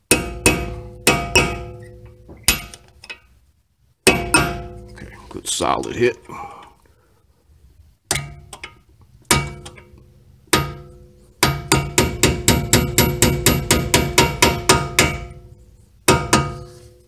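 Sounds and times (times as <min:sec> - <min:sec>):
hammer striking metal punch: 0:00.0 - 0:03.2, 0:04.0 - 0:05.0, 0:08.1 - 0:16.8.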